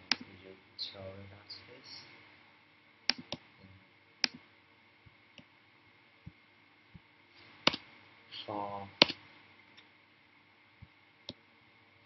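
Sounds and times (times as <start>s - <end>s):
mouse and keyboard clicks: 3.1s - 3.4s, 9.0s - 9.2s.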